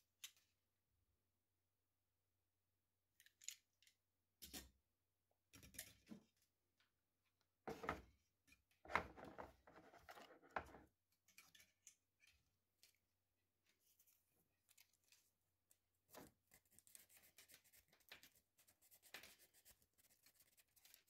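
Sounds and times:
plastic scraping and clicking: 8.9s - 10.8s.

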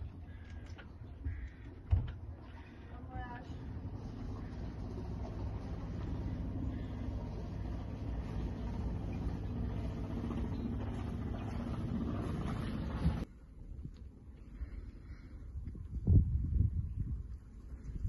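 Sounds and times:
diesel engine idling: 2.7s - 13.3s.

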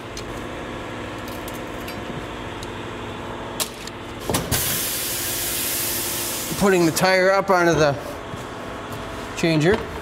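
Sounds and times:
steady hum: 0.0s - 10.0s.

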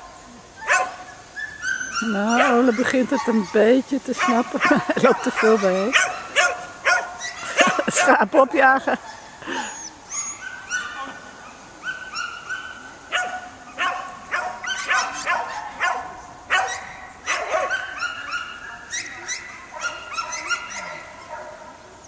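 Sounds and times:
dog barking: 0.6s - 1.0s, 1.9s - 3.6s, 4.2s - 8.2s, 11.8s - 21.7s.

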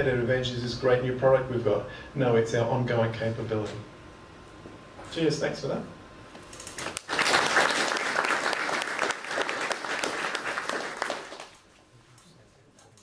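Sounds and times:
audience applauding: 6.8s - 11.6s.

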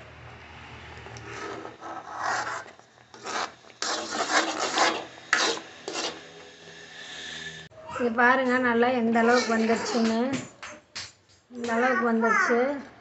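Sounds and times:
ladle scraping iron pan: 1.3s - 6.3s.

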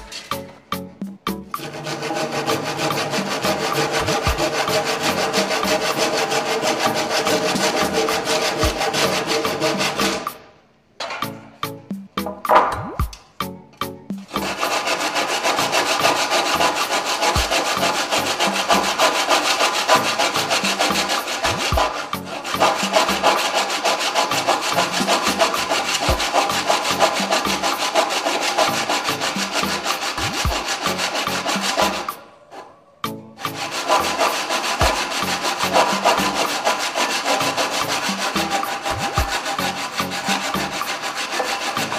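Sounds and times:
handsaw cutting wood: 1.6s - 10.5s, 14.2s - 32.8s, 33.4s - 41.9s.

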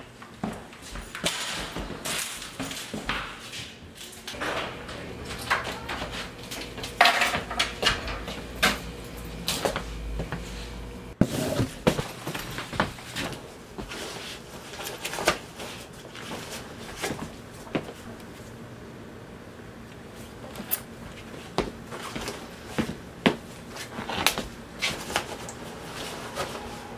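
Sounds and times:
low hum: 4.4s - 11.3s.

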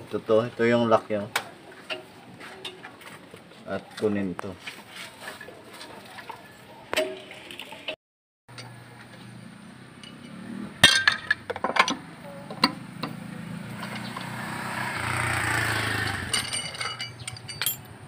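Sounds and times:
lug wrench clinking on nuts: 10.0s - 13.1s, 15.8s - 18.0s.

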